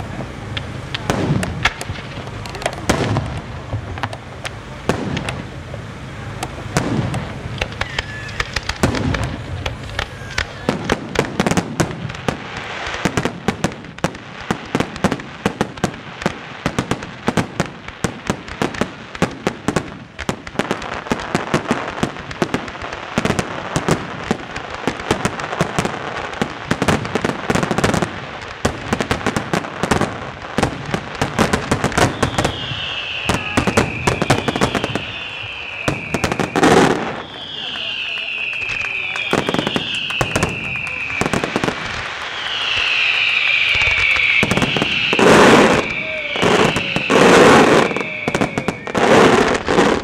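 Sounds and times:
fireworks crackle: 0:00.0 - 0:50.0
firework shell bursts: 0:06.4 - 0:14.0
firework whistle falling in pitch: 0:07.6 - 0:09.2, 0:31.8 - 0:50.0.

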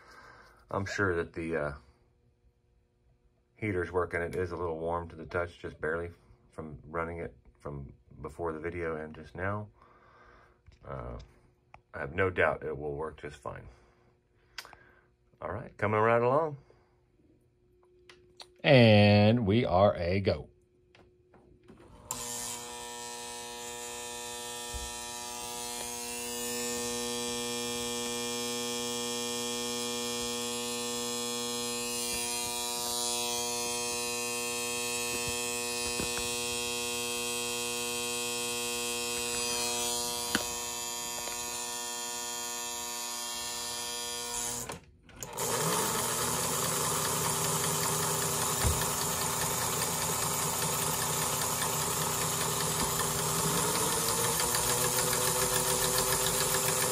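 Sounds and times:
toy locomotive motor humming: 0:22.1 - 0:56.9.

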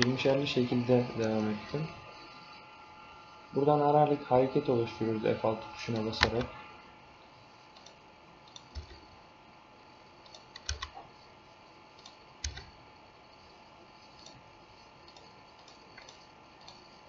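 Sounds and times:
faint steady hum: 0:00.0 - 0:17.0
keyboard key presses: 0:10.3 - 0:11.0.

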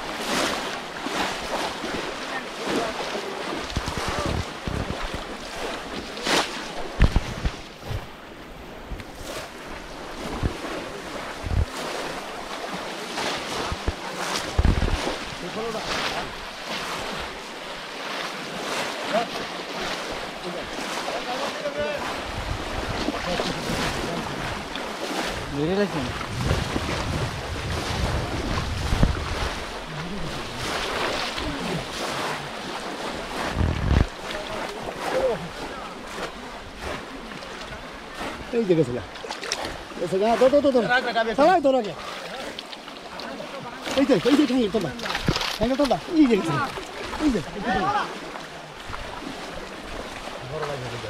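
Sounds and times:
water sloshing and splashing: 0:00.0 - 0:51.0
wind on microphone: 0:03.6 - 0:12.4, 0:13.4 - 0:16.4, 0:22.0 - 0:34.9
low thumps: 0:26.0 - 0:30.2, 0:33.4 - 0:34.2.

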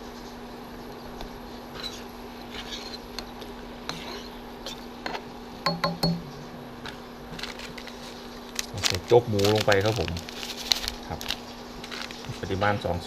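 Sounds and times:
metal spoon clinking against a pan: 0:05.7 - 0:06.2.

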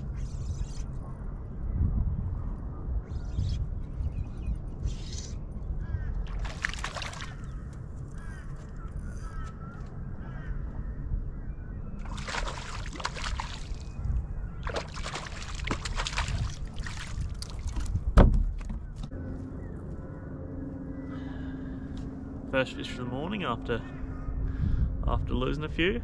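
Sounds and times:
steady low hum: 0:00.0 - 0:26.0
fish splashing at the surface: 0:06.3 - 0:07.4, 0:12.0 - 0:13.9, 0:14.6 - 0:17.9
loud thump: 0:18.2 - 0:18.8.

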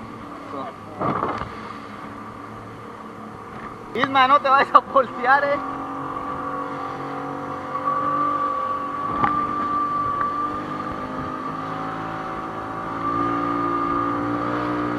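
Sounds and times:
outboard motor droning: 0:00.0 - 0:14.9.

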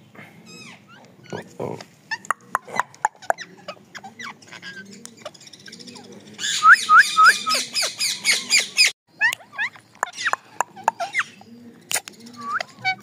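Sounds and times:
parakeets screeching: 0:02.1 - 0:13.0
parakeets chirping: 0:07.3 - 0:13.0.

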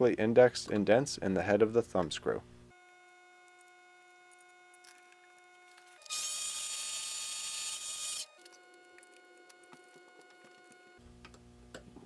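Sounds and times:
metal lathe cutting brass: 0:06.1 - 0:11.0.

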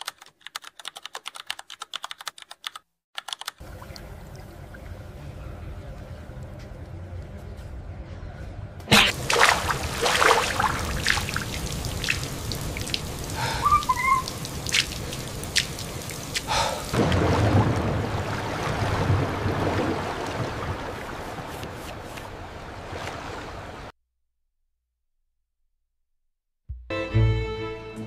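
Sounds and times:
rain falling: 0:09.1 - 0:21.9
drips and splashes on wet ground: 0:09.1 - 0:23.5
faint chirp: 0:13.5 - 0:14.3.

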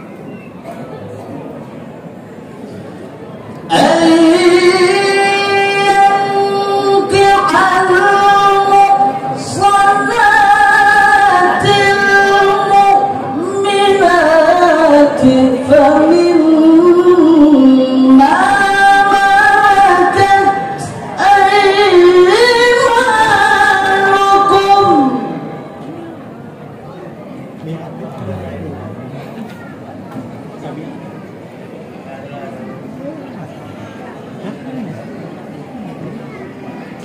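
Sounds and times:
man reciting melodically over pa: 0:03.7 - 0:25.7, 0:27.7 - 0:29.2.

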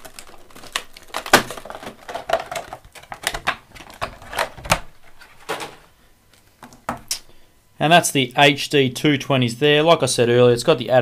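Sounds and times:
plastic packaging crackling: 0:00.0 - 0:07.2.

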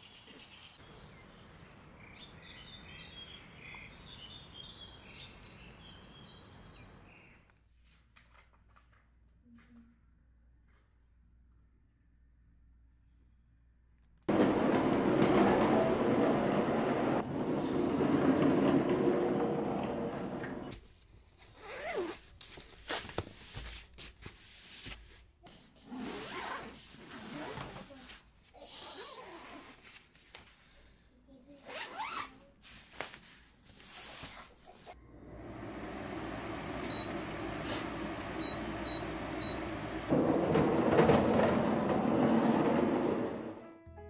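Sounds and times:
zippers being pulled open: 0:31.6 - 0:32.3
dehumidifier fan running: 0:35.0 - 0:41.9
control panel beeping: 0:38.4 - 0:39.7.

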